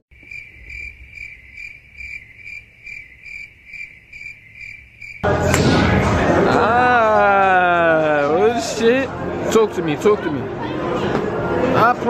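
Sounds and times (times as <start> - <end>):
cricket chirping: 0.1 - 5.2
people talking: 5.6 - 12.0.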